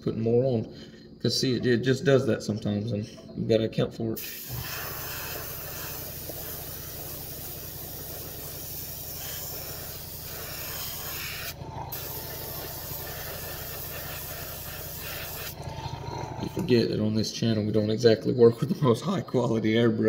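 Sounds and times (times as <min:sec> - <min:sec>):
compressor pulsing hum: 0:00.0 - 0:20.0
airbrush spraying hiss: 0:04.2 - 0:15.6.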